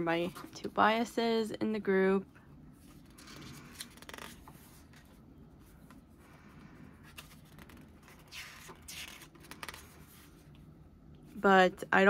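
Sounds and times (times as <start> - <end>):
page turning rustle: 2.8 - 5.2, 7.0 - 10.5.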